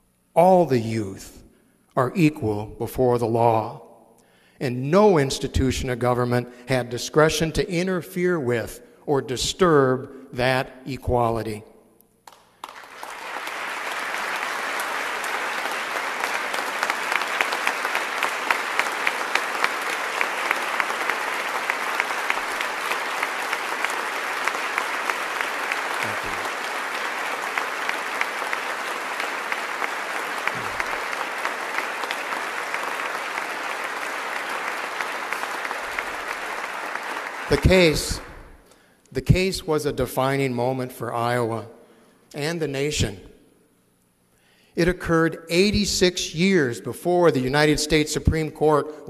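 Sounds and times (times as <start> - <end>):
large audience applauding: 12.2 - 38.6.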